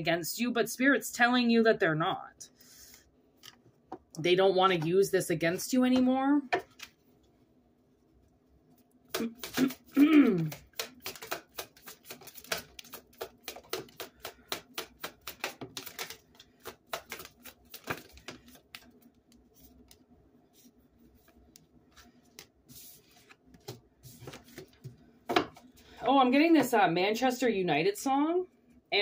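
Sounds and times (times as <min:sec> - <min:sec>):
cards being shuffled: 0:09.1 - 0:20.0, 0:20.6 - 0:25.0
person humming: 0:09.2 - 0:10.6.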